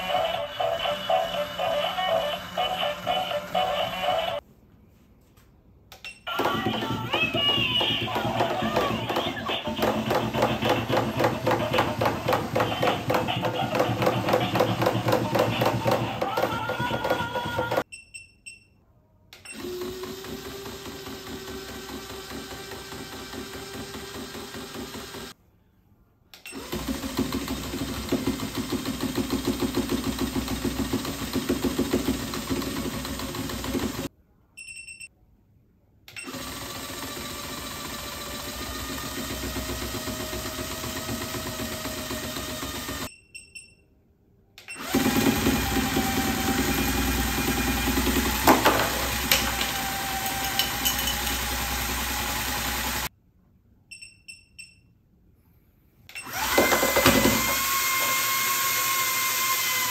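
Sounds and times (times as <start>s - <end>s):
toy motor whirring and rattling: 0.0s - 4.4s
brief beeps: 34.6s - 35.1s, 43.1s - 43.9s, 53.9s - 55.0s.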